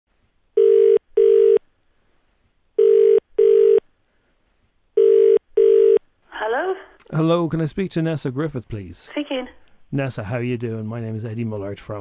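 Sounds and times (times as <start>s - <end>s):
telephone ringback tone: 0.6s - 1.6s, 2.8s - 3.8s, 5.0s - 6.0s.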